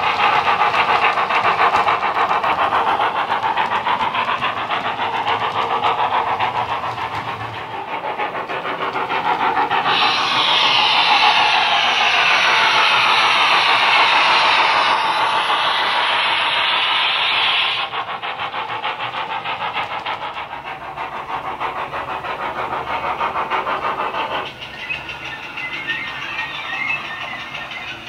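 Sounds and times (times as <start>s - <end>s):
model train rhythmic beat: 0.0s - 28.0s
steam hiss: 0.0s - 28.0s.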